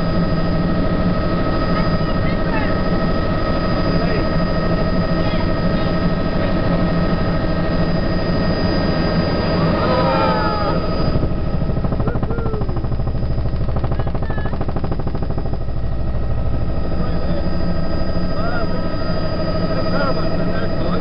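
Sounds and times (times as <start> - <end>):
helicopter engine and rotor: 0.0 - 21.0.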